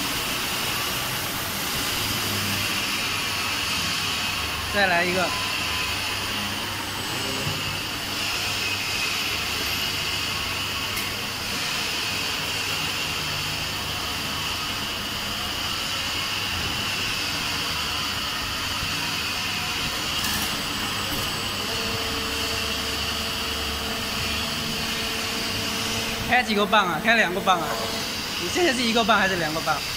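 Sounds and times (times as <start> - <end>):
press whirring hiss with hum: 0.0 - 29.9
steady tone: 21.3 - 29.1.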